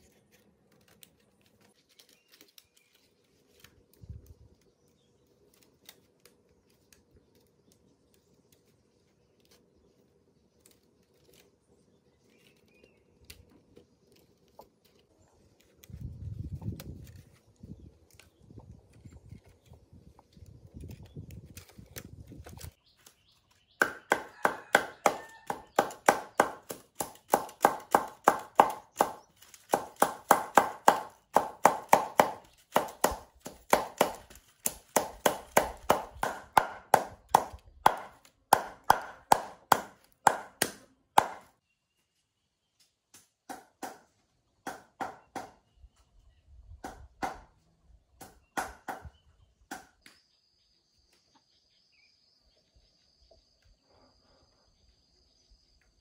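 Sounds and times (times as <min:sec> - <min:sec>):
knife chopping onto wooden block: 0:23.8 - 0:41.5.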